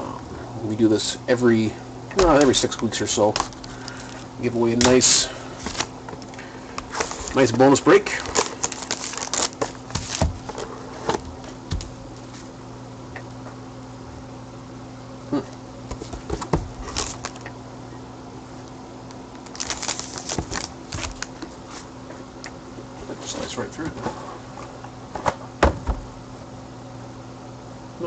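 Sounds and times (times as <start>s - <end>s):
foil pack crinkling: 2.2s - 10.8s, 16.0s - 17.5s, 19.1s - 21.9s.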